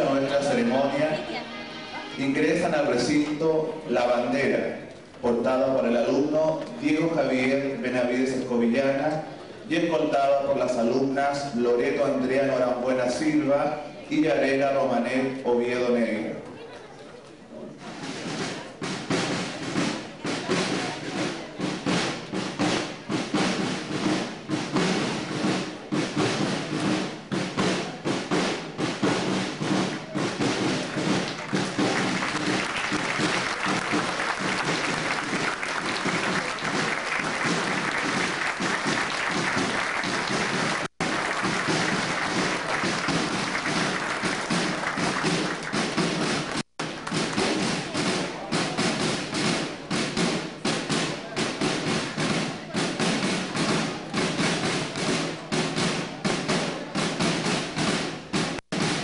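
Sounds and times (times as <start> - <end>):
music playing: 0.0 - 4.5
audience applauding: 30.5 - 47.4.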